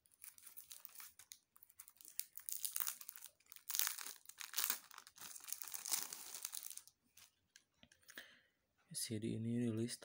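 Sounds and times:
plastic sleeve crinkling: 0.0s - 7.4s.

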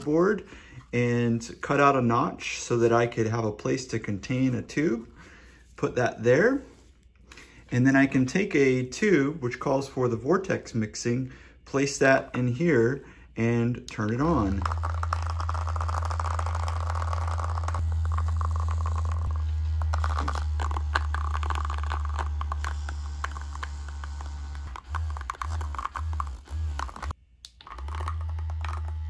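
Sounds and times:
plastic tube rattling: 14.0s - 23.7s, 24.7s - 29.0s
massager motor buzzing: 14.1s - 29.0s.

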